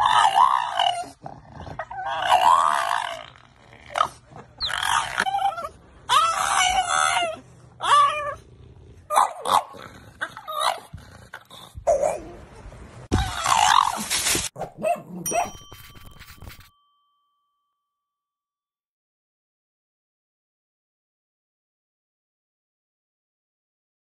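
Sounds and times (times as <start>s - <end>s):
dog whining yowls: 0.0s - 1.2s, 1.8s - 3.3s, 3.9s - 8.4s, 13.1s - 14.1s.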